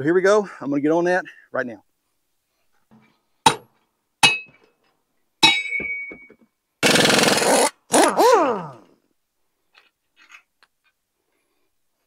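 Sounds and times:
tools clanking on metal frame: 0:02.8 - 0:06.5.

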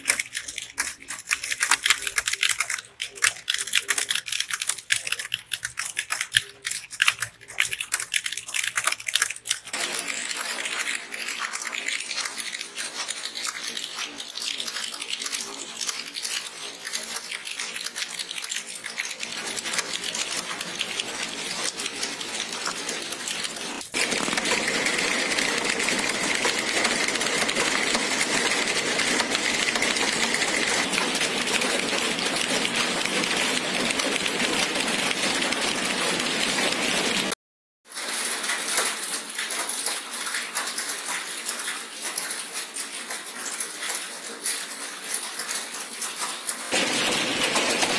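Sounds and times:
mechanical keyboard typing clatter: 0:00.0 - 0:37.4, 0:38.0 - 0:47.9.

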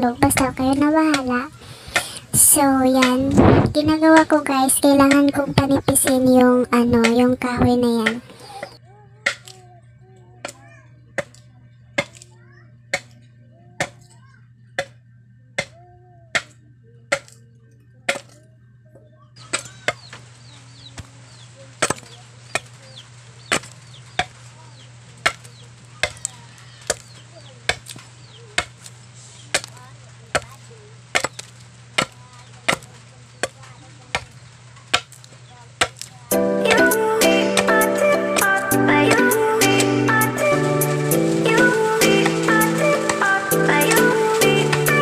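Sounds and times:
chickens clucking: 0:00.0 - 0:09.6, 0:19.4 - 0:45.0
knife chopping into wood: 0:12.0 - 0:12.2, 0:17.1 - 0:17.4, 0:18.1 - 0:18.4, 0:29.5 - 0:29.7, 0:31.2 - 0:36.1
music: 0:36.3 - 0:45.0.

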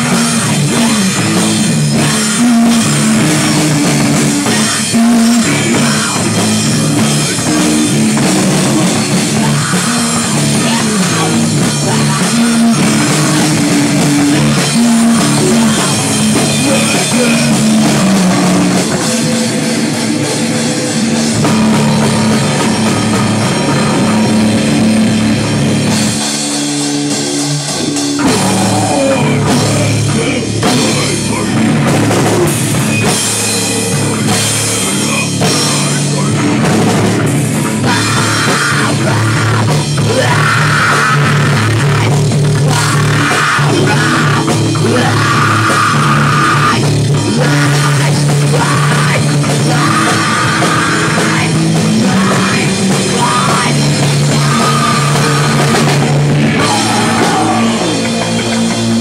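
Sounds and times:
bass guitar: 0:00.0 - 0:59.0
distorted electric guitars: 0:00.0 - 0:59.0
drum kit: 0:00.0 - 0:59.0
person screaming vocals: 0:28.2 - 0:31.4, 0:37.9 - 0:55.8, 0:56.5 - 0:58.3.

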